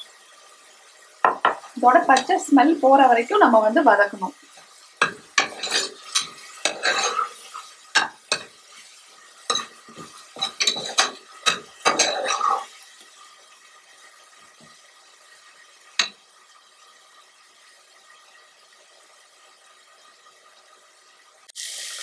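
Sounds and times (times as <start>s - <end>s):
metal spoon scraping pressure cooker: 5.0s - 8.5s, 10.4s - 12.7s.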